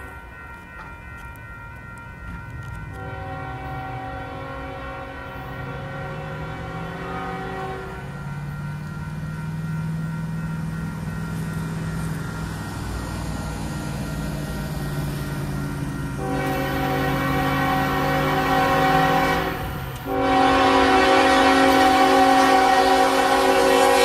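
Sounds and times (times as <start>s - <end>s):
diesel locomotive engines running: 0.0s - 24.0s
train air horn blast: 3.0s - 8.1s, 16.2s - 24.0s.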